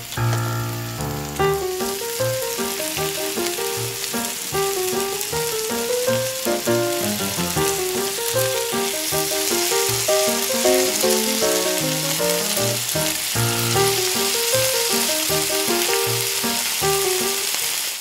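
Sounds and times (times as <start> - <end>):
oil sizzling: 0.0 - 18.0.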